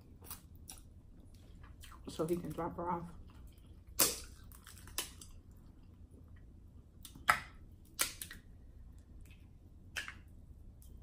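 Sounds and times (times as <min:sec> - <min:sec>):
crab shells cracking: 0:03.9 - 0:05.4, 0:07.1 - 0:08.5.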